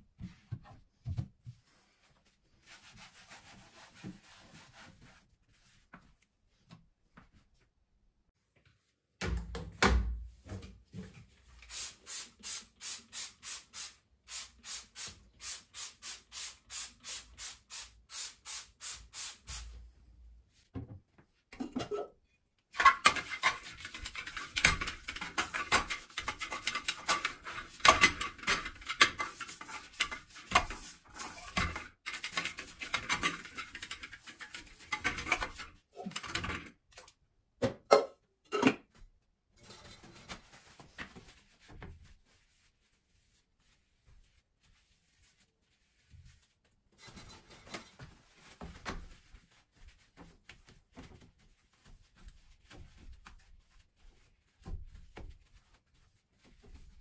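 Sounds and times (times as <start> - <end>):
toilet brush scrubbing bowl: 1.7 - 5.8, 11.4 - 19.7, 22.9 - 36.3, 39.7 - 57.0
toilet cleaner squirting: 11.7 - 19.6.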